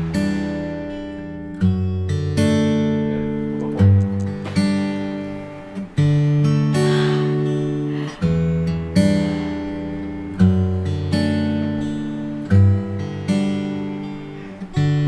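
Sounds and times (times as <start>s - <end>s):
strummed acoustic guitar chords: 0.0s - 15.0s.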